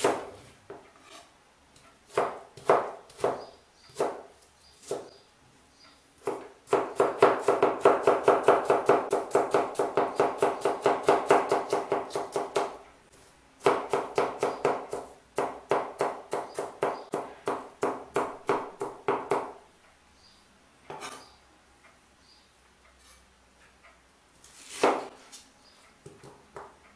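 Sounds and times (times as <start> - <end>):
knife chopping on cutting board: 2.1 - 4.2, 6.2 - 12.8, 24.7 - 25.1.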